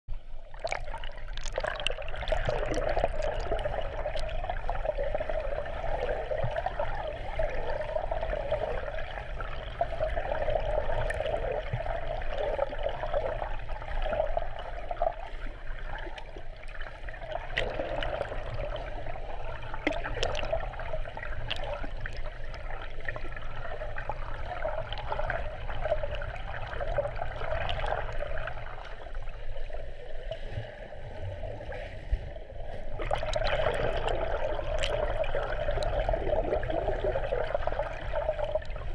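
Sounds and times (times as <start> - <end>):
muffled underwater churning water: 0.1 - 38.9
small underwater clicks: 0.4 - 7.9, 16.0 - 29.2, 33.0 - 38.9.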